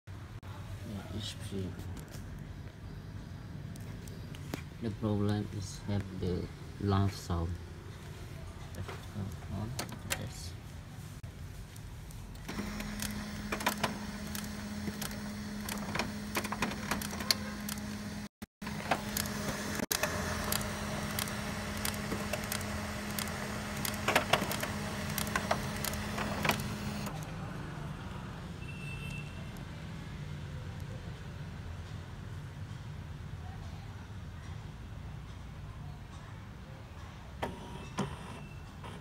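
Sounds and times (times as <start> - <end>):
printer motor hum: 12.4 - 27.3
printer clicks and rattles: 12.5 - 27.2.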